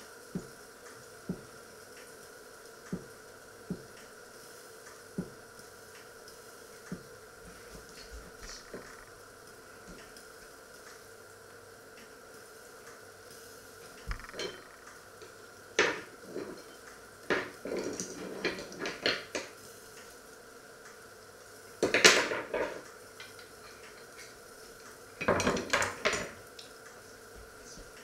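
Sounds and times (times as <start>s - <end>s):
metal kitchenware clattering: 14.3s - 14.7s.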